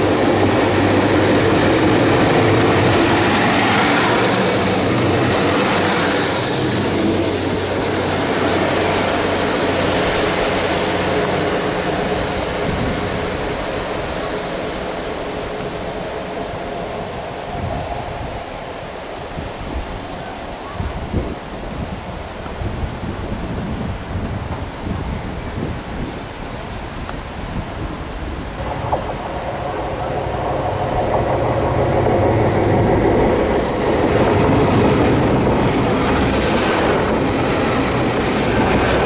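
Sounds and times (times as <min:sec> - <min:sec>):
train wheels rumbling: 0:00.0 - 0:18.6, 0:21.0 - 0:39.0.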